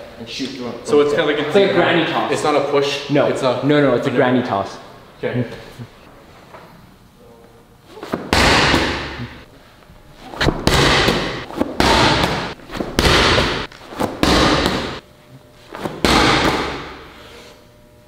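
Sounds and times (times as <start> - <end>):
medicine ball slamming into wall: 8.1 - 9.3, 10.4 - 15.0, 15.8 - 17.1.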